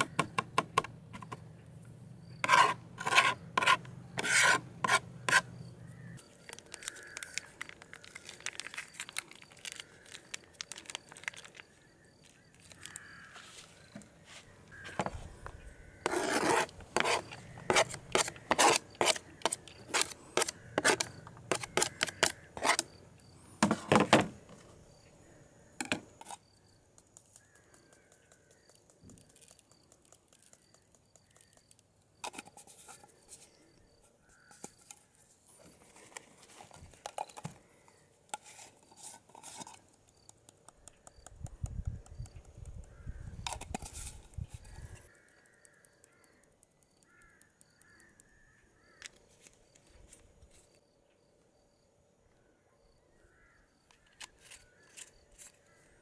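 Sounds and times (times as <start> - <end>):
knife scraping cutting board: 2.4 - 5.5, 16.0 - 22.8
handling sounds: 6.2 - 22.9, 31.5 - 40.7.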